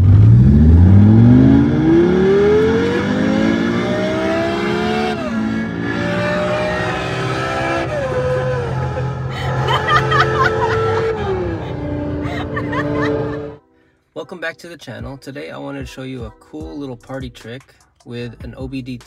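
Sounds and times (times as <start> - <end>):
synthetic engine sound through stereo: 0.0 - 13.6.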